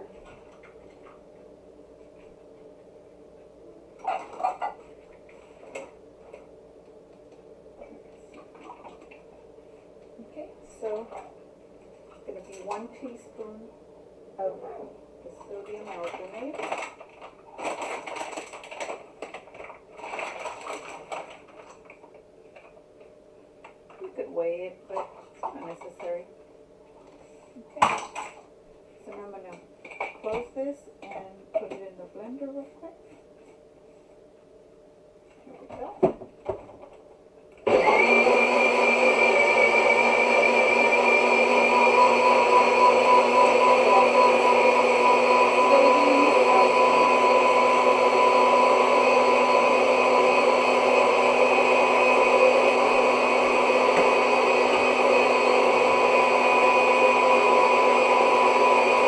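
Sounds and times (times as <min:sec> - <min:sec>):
plastic bag crinkling: 0:15.8 - 0:22.1
blender motor whining: 0:37.7 - 0:59.0.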